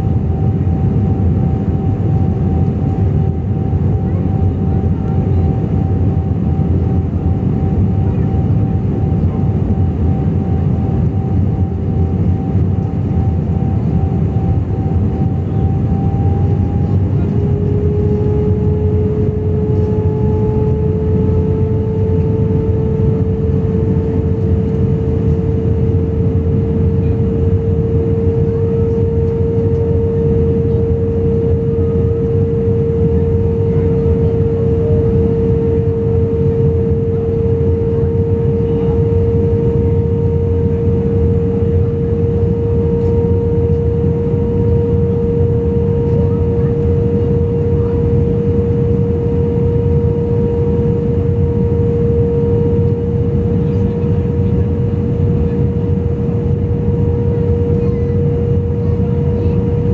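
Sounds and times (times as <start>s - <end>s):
jet engines roaring in cabin: 0.0s - 59.9s.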